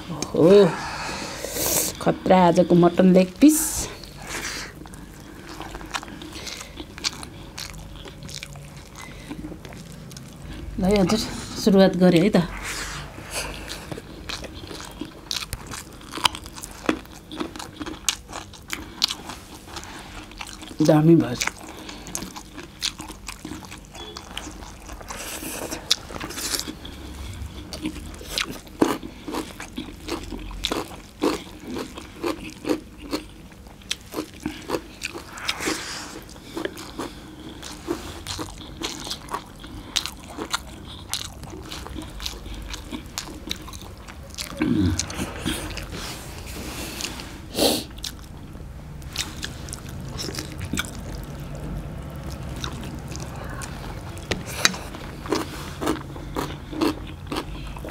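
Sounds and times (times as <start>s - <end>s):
chewing and lip smacks: 13.4s - 35.3s, 36.2s - 46.0s, 47.9s - 57.9s.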